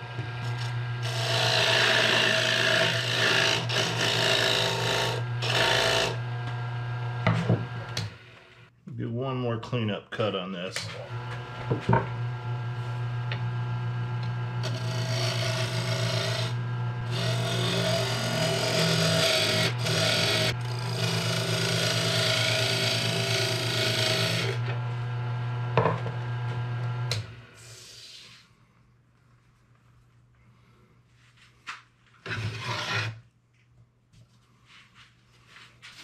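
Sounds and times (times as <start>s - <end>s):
lathe motor hum: 0.0s - 8.4s, 11.0s - 27.3s.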